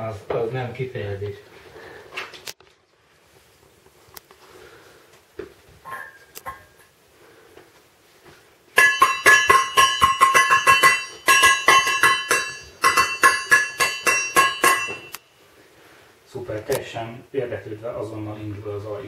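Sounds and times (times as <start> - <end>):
metal bowl banged with utensil: 8.8 - 15.2.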